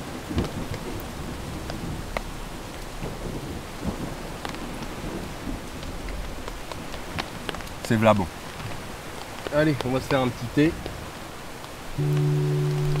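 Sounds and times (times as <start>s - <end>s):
low rumble of thunder: 0.0s - 7.8s
rain falling on a tent: 0.0s - 13.0s.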